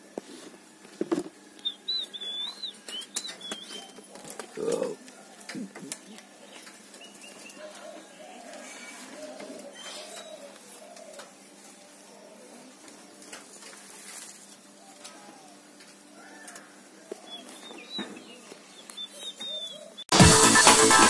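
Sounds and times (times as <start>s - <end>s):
small bird chirping: 1.6s - 5.0s, 17.2s - 20.1s
doves cooing: 1.6s - 20.1s.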